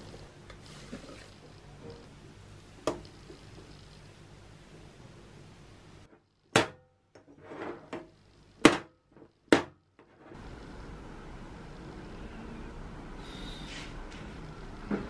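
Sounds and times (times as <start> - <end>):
objects scraping on hard surface: 7.2 - 8.2.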